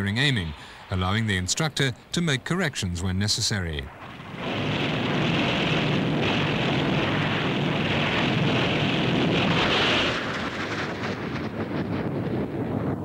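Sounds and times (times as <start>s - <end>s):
jet engine roar: 3.9s - 13.0s.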